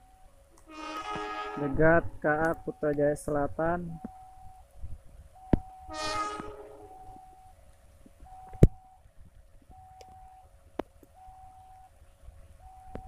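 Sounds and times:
train approaching: 0.0 - 2.3, 5.8 - 7.6
two-tone electronic warning signal: 0.0 - 3.0, 3.7 - 4.7, 5.4 - 7.6, 8.3 - 9.0
train horn: 0.7 - 2.1, 5.8 - 7.3.

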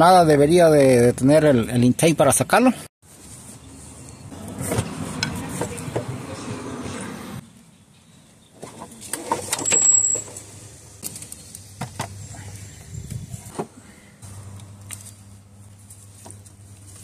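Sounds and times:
metal tools clinking: 9.4 - 10.6.

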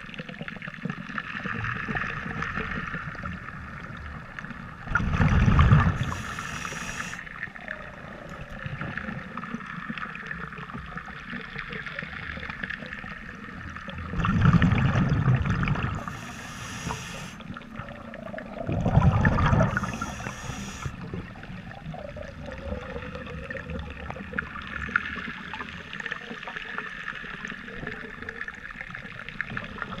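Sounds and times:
underwater noise: 0.0 - 30.0
exhaled bubbles rushing: 4.8 - 7.0, 12.5 - 16.9, 17.5 - 26.0
regulator hiss: 6.0 - 7.3, 16.0 - 17.4, 19.6 - 21.0.

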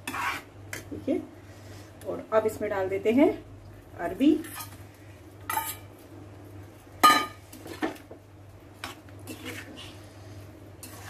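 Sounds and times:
spatula scraping frying pan: 0.0 - 0.8, 4.4 - 4.8, 5.5 - 5.9, 8.8 - 10.1, 10.8 - 11.0.

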